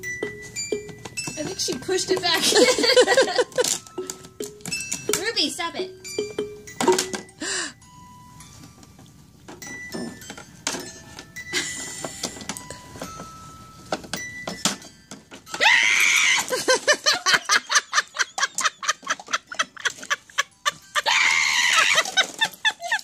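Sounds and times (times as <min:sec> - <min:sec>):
music box notes: 0:00.0 - 0:15.6
loud high-pitched cry: 0:15.6 - 0:16.6, 0:21.0 - 0:22.2.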